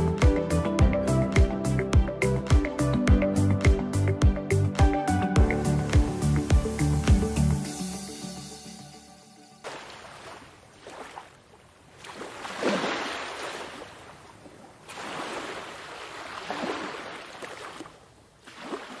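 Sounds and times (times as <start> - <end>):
ocean waves breaking: 9.6 - 19.0.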